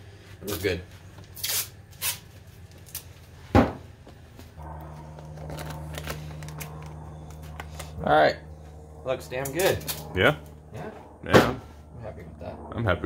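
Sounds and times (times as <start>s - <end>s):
tape torn off the roll: 1.4s - 2.2s
steady low hum: 4.5s - 13.0s.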